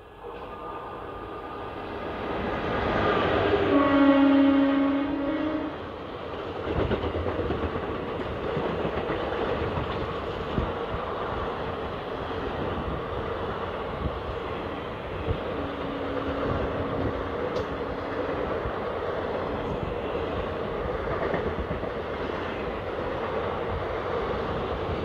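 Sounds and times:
train coaches rumbling past: 0.0s - 25.0s
wheels clacking over rail joints: 6.4s - 10.8s, 15.9s - 24.2s.

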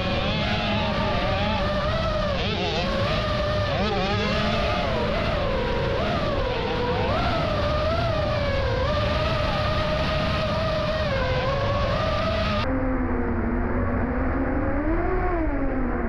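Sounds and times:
motocross bike engine: 0.0s - 12.7s
drone motors whining: 0.0s - 16.0s.

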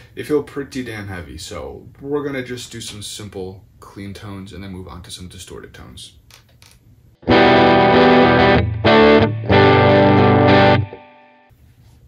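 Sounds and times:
strummed electric guitar chords: 7.2s - 11.5s.

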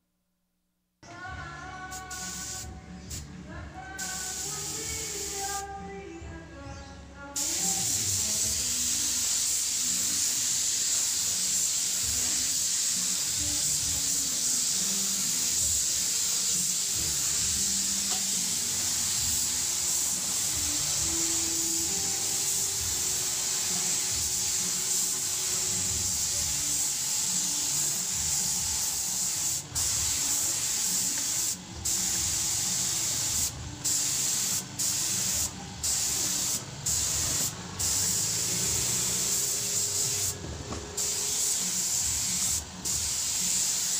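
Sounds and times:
background music: 1.0s - 43.9s
spray gun hissing: 1.9s - 3.3s, 4.0s - 5.7s, 7.4s - 43.9s.

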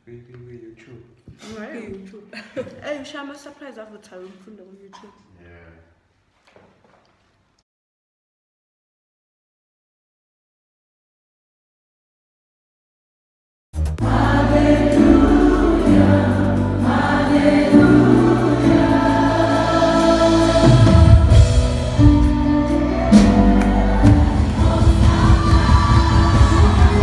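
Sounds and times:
gospel band playing: 13.8s - 27.0s
choir singing: 14.0s - 27.0s.

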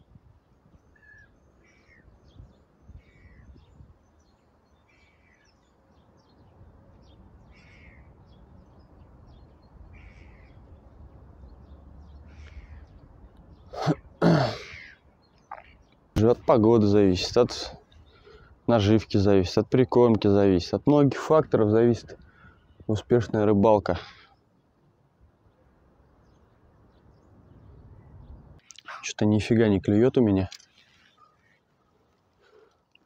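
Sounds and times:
wind rumble on microphone: 0.0s - 1.1s, 2.0s - 4.3s, 27.1s - 28.6s
distant bird calling: 0.0s - 19.4s, 21.6s - 29.0s, 30.3s - 33.0s.

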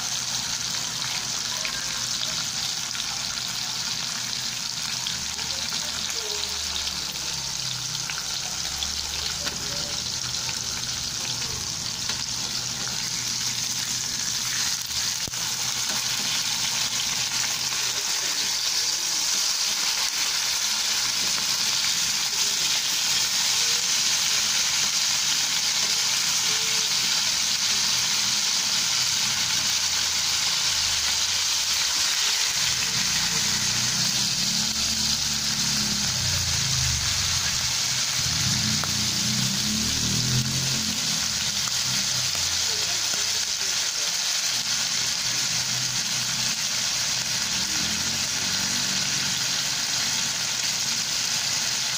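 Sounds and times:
meat sizzling in a frying pan: 0.0s - 51.9s.

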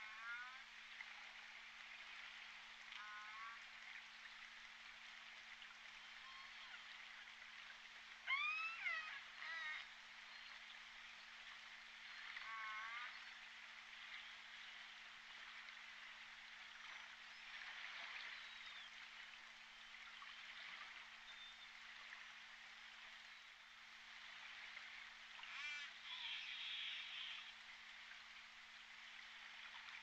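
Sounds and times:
killer whale pulsed calls: 8.3s - 9.9s, 12.4s - 13.2s, 25.4s - 27.5s.

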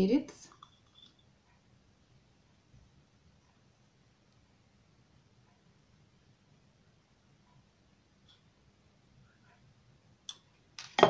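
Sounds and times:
faint low room hum: 0.0s - 11.0s.

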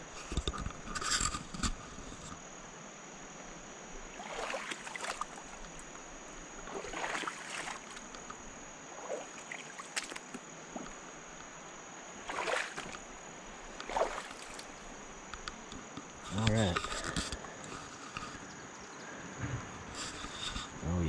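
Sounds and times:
river water hissing: 0.0s - 21.0s
water sloshing and splashing: 4.1s - 18.4s.

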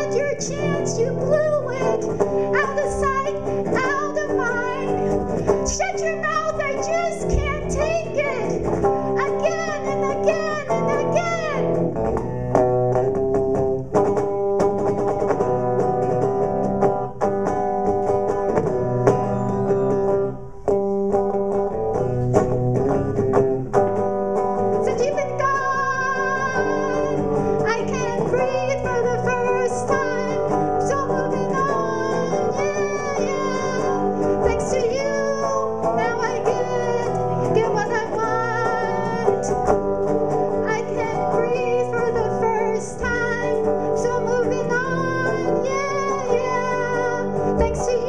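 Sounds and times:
woman singing: 0.0s - 12.3s, 24.5s - 48.0s
electric guitar playing: 0.0s - 48.0s.

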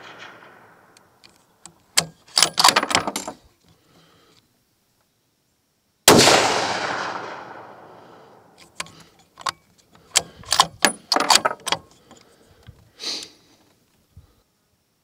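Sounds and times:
rifle shot: 0.0s - 1.0s, 6.1s - 8.6s
metallic clicks of rifle bolt: 0.0s - 3.4s, 8.5s - 12.3s.

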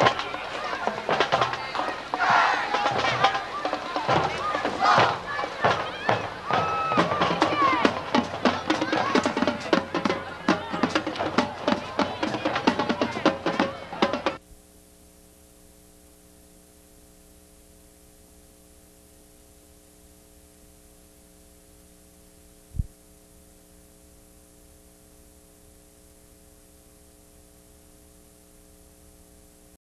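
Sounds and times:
electrical hum with hiss: 14.4s - 29.8s.

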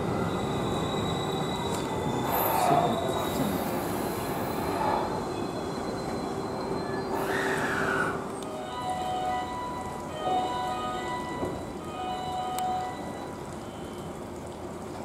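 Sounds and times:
train wheels squealing: 0.0s - 9.8s
electric train rumbling hum: 0.0s - 15.0s.

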